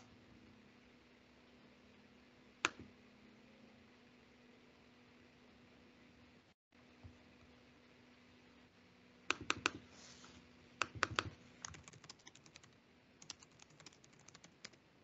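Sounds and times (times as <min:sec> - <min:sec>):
faint steady hum: 0:00.0 - 0:15.0
typing on computer keyboard: 0:10.8 - 0:14.8.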